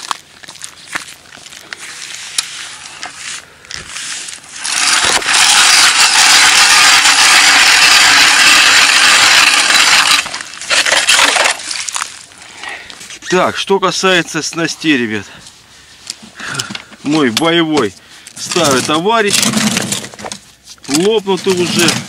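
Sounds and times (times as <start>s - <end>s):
ice auger grinding ice: 4.0s - 12.1s, 18.4s - 20.2s, 20.9s - 22.0s.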